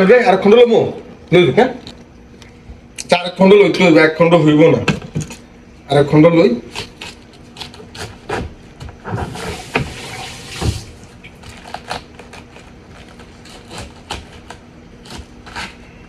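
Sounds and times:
knife crunching through cabbage: 6.6 - 10.6, 11.2 - 16.0.

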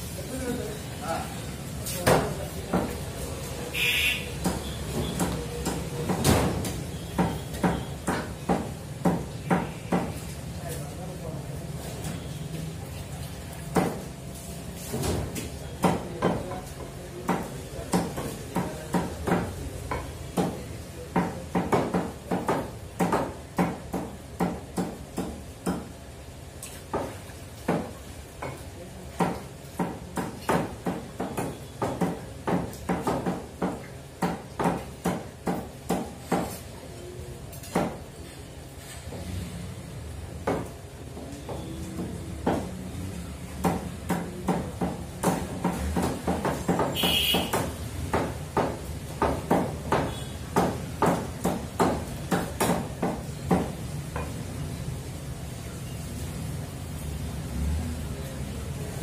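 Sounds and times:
cleavers chopping on wooden blocks: 4.4 - 10.2, 17.2 - 25.9, 26.9 - 36.6, 37.7 - 38.0, 41.4 - 54.4.

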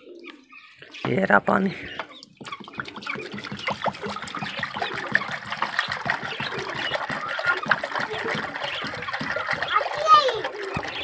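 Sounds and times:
water pouring into a bowl: 2.5 - 11.0.

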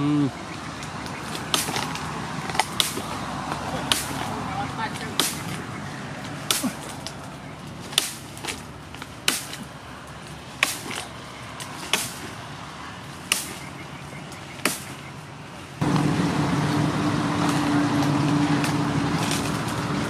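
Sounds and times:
knife chopping tree branch: 1.3 - 5.7, 6.3 - 12.4, 13.2 - 13.7, 14.6 - 15.0.

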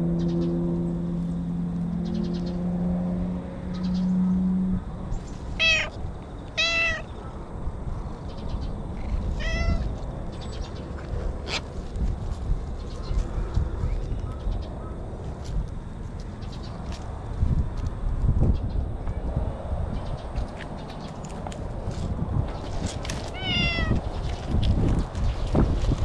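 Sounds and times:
cat meowing: 5.6 - 7.1, 9.3 - 9.9, 23.3 - 24.0.

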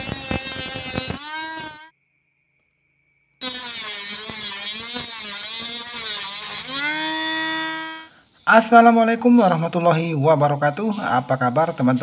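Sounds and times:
disc cutting metal rod: 0.0 - 1.9, 3.4 - 8.0
small motor whining: 0.0 - 1.9, 3.4 - 8.2.

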